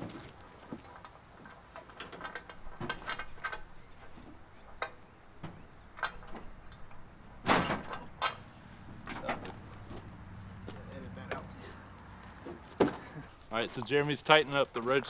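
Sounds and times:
loud thump: 7.4s - 8.0s
knocks on metal truck rack: 7.4s - 8.4s.

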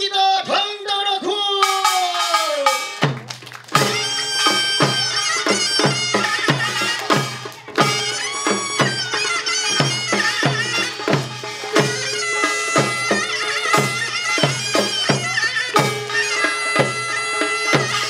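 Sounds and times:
drums beating steady pattern: 1.4s - 18.0s
shrill reed wind melody: 3.8s - 18.0s.

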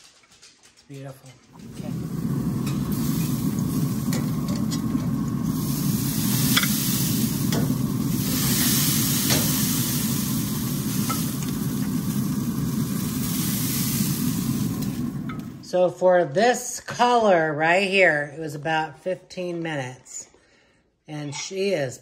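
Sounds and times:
low rumble: 1.5s - 15.7s
steaks sizzling on a grill: 1.6s - 15.7s.

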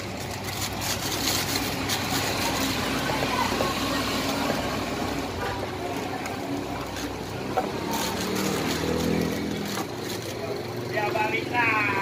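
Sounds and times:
plastic bag crinkling: 0.0s - 3.0s, 6.8s - 10.6s
traffic noise: 0.0s - 12.0s.

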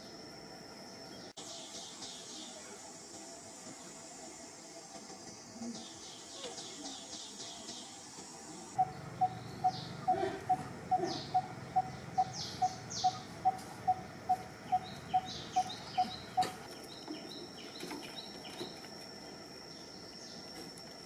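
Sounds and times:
high insect-like whine: 0.0s - 21.0s
higher bird chirps: 8.8s - 18.7s.

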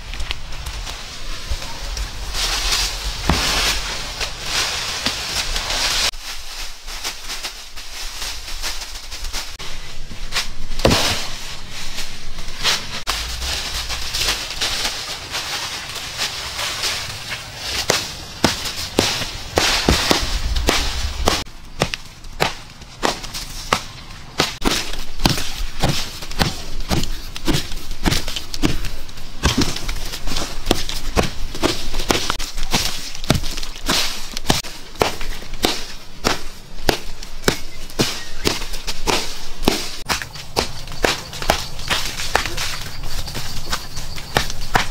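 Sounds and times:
wooden club pounding earth: 1.9s - 4.4s, 10.4s - 11.4s, 17.8s - 44.9s.

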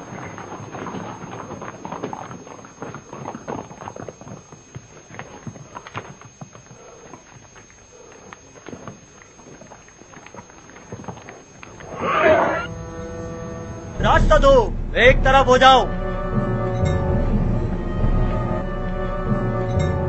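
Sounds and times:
hooves clattering on pavement: 0.0s - 12.0s.

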